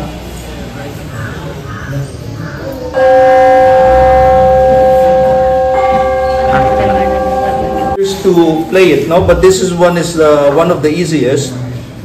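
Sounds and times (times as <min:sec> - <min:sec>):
metal bell ringing: 0:03.0 - 0:09.0.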